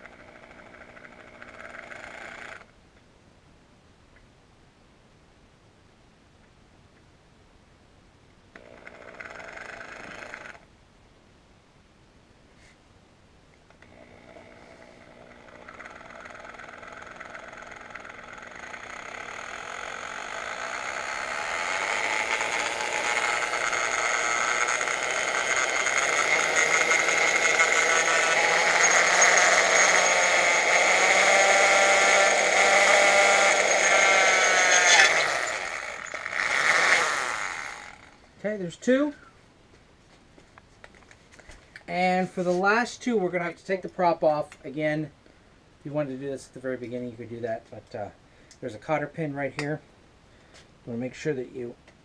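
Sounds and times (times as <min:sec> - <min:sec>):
cordless drill whining: 0:00.0 - 0:02.7, 0:08.6 - 0:10.6, 0:13.8 - 0:38.2.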